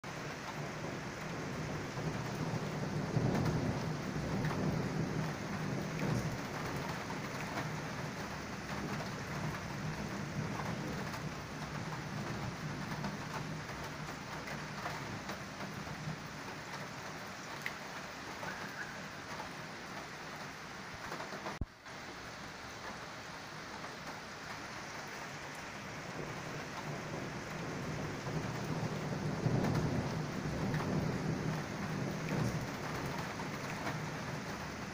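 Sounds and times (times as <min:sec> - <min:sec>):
steady rain: 0:00.0 - 0:34.9
rolling thunder: 0:00.5 - 0:17.1, 0:26.0 - 0:34.9.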